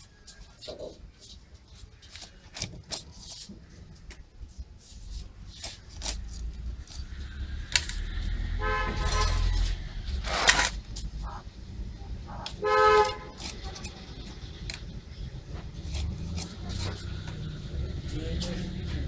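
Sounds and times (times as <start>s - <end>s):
passing traffic rumble: 3.4s - 19.0s
short sharp scrape: 7.9s - 10.8s
vehicle horn tooting: 8.5s - 9.8s, 12.3s - 13.9s.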